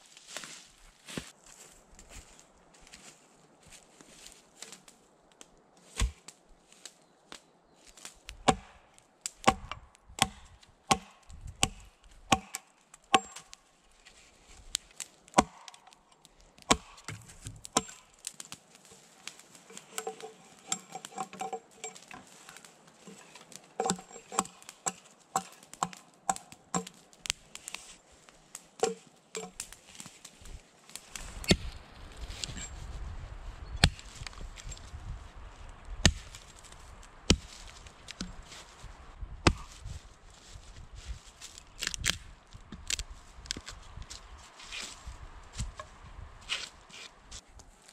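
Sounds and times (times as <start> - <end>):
hatchet chopping log: 6.0 - 6.2, 8.4 - 8.8, 9.4 - 13.5, 15.3 - 16.0, 16.6 - 18.2, 19.7 - 22.1, 23.8 - 27.0, 28.8 - 29.7, 31.5 - 31.7, 36.0 - 36.4, 37.3 - 38.4, 39.4 - 39.7.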